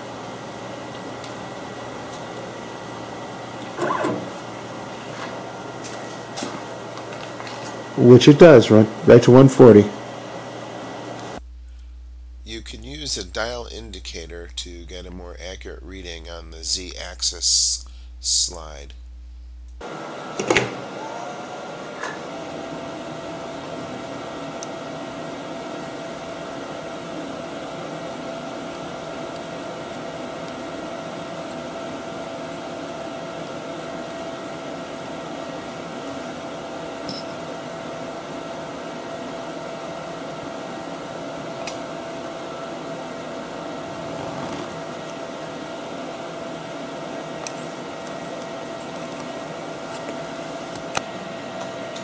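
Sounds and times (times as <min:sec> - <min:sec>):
mechanical hum and hiss: 0:00.0 - 0:52.0
thin whine-like tone: 0:19.8 - 0:52.0.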